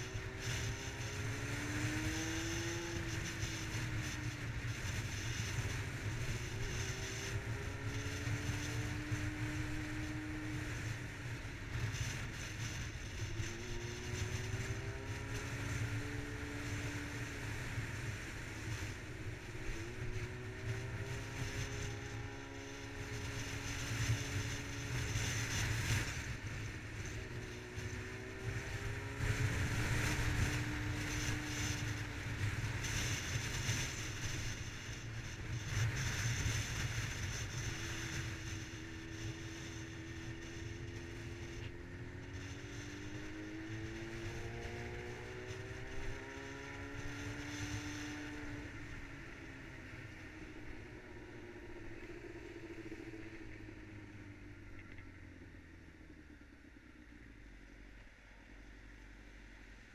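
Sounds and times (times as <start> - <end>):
wind rumble on microphone: 0.0 - 57.8
motorcycle engine revving: 0.0 - 59.9.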